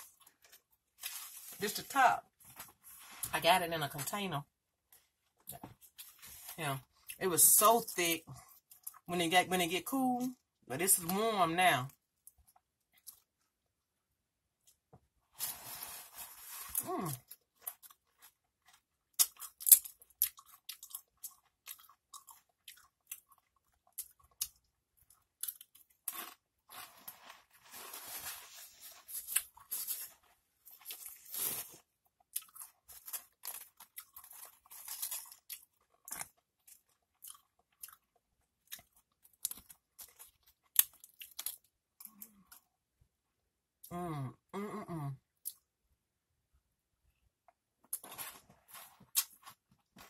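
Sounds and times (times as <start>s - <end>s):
chips crunching and chewing: 15.4s - 42.6s, 47.8s - 50.0s.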